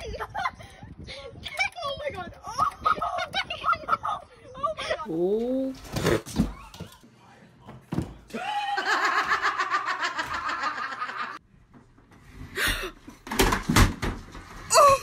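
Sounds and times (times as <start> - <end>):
tv falling with thumps and clatter: 13.1 - 14.7.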